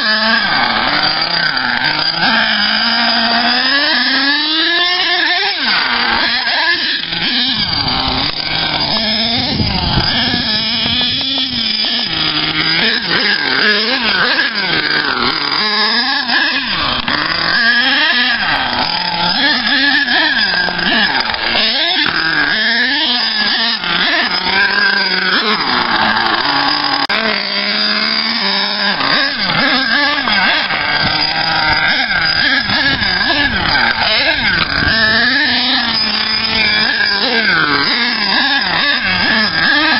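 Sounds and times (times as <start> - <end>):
nitro engine revving: 0.0 - 39.9.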